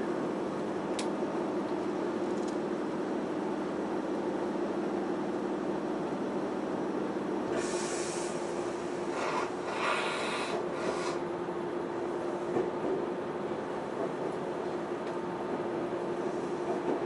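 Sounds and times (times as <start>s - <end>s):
train running noise: 0.0s - 17.0s
hissing scrape: 9.1s - 11.2s.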